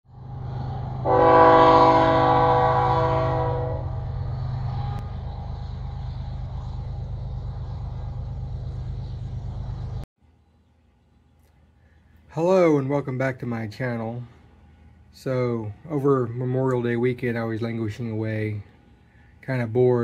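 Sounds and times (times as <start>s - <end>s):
low rumble: 0.1s - 10.1s
train horn chord: 1.0s - 4.1s.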